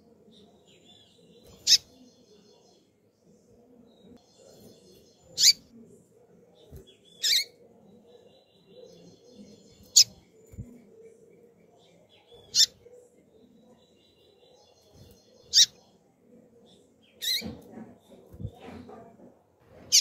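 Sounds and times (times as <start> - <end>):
bird chirping: 0.3 - 2.9, 3.8 - 5.8, 6.6 - 15.9.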